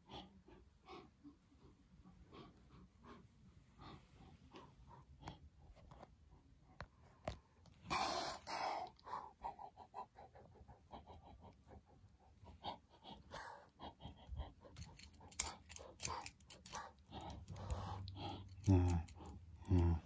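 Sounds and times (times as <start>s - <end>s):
person panting: 7.9s - 20.0s.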